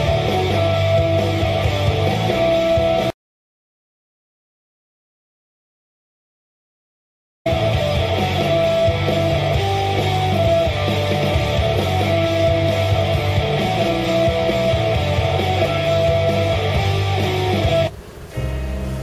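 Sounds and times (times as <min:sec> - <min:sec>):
rock music with guitar and bass: 0:00.0 - 0:03.1, 0:07.5 - 0:19.0.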